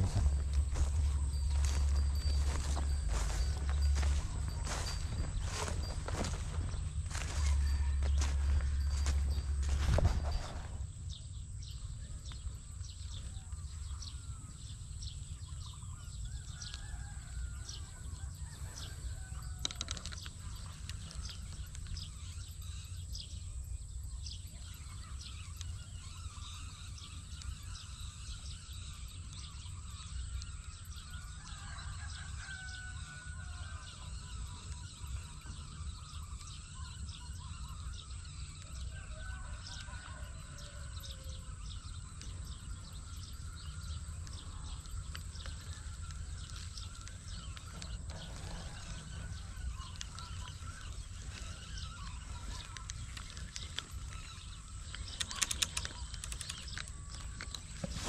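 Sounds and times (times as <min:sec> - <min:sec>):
wind rumbling on microphone: 0:00.0 - 0:24.4
faint bird calls: 0:00.0 - 0:58.0.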